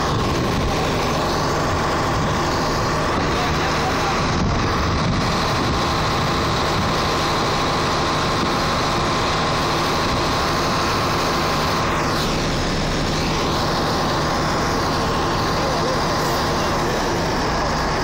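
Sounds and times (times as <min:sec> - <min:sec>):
constant hum: 0:00.0 - 0:18.0
diesel engine running: 0:00.0 - 0:18.0.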